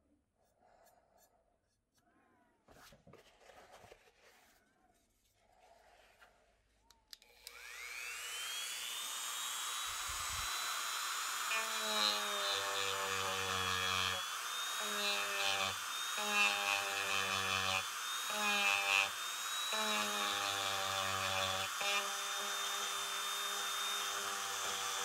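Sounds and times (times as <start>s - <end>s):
rotary tool high whine: 7.3s - 25.0s.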